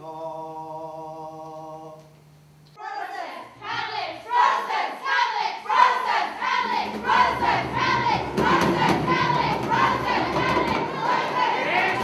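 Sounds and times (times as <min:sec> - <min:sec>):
group of voices chanting: 0:02.8 - 0:12.0.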